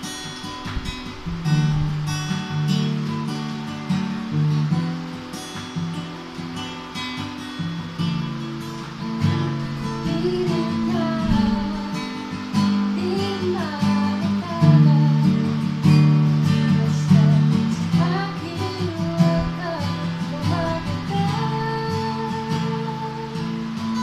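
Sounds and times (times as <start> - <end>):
acoustic guitar chords: 0.0 - 24.0
person singing: 9.8 - 24.0.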